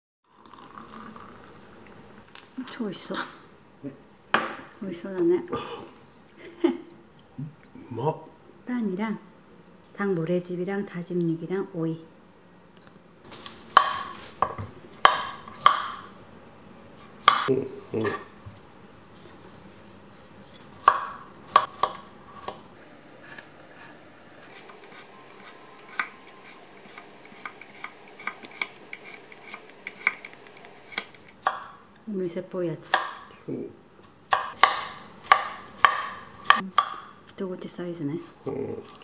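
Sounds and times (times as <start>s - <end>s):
knife chopping on wooden board: 13.7s - 16.0s, 17.2s - 17.5s, 20.8s - 22.6s, 26.8s - 31.7s, 32.9s - 33.2s, 34.3s - 37.1s.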